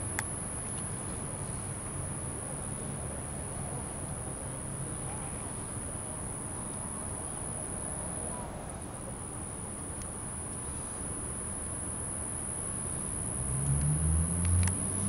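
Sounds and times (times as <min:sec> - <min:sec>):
faint aircraft engine rumble: 0:00.0 - 0:13.2.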